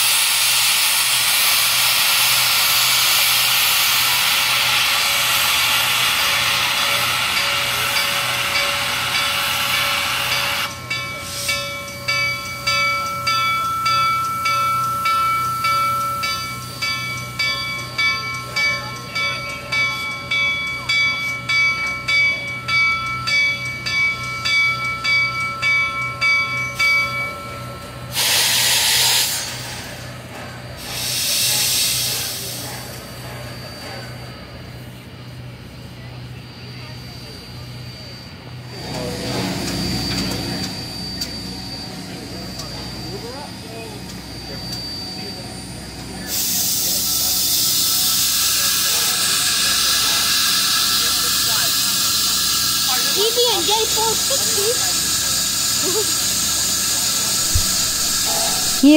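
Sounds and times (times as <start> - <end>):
loud steam blasts: 0.0 - 11.9, 28.0 - 35.8, 46.2 - 58.9
steam hissing: 0.0 - 13.6, 25.7 - 58.9
locomotive bell ringing: 1.9 - 28.3, 29.1 - 58.9.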